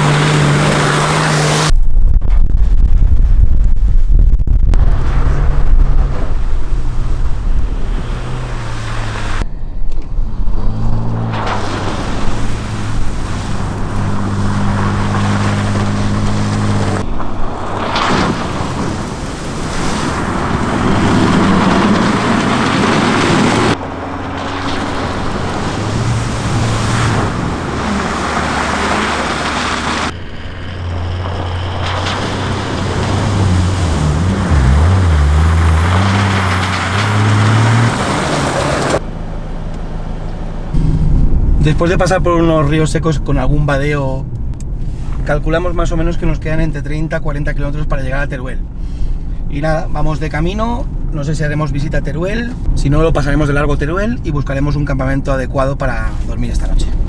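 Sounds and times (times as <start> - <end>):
off-road vehicle engines: 0.0 - 1.7, 4.8 - 57.0
tyre and wind noise: 0.0 - 39.0.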